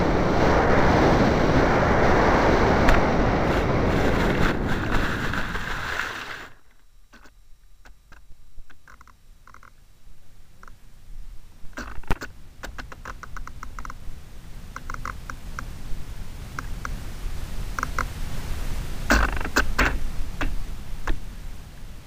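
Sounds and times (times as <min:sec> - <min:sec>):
model plane skidding through grass: 0:00.0 - 0:06.6
rushing wind: 0:00.0 - 0:06.7, 0:10.6 - 0:22.0
faint scattered clicks: 0:04.1 - 0:09.8, 0:10.6 - 0:10.8, 0:11.7 - 0:14.0, 0:14.7 - 0:15.8, 0:16.5 - 0:17.0, 0:17.7 - 0:18.2.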